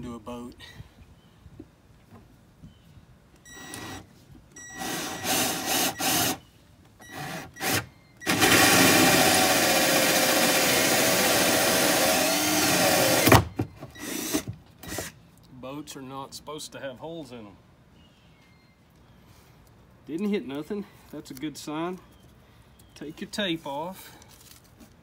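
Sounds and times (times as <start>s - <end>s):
power drill boring fiberglass: 8.3s - 13.4s.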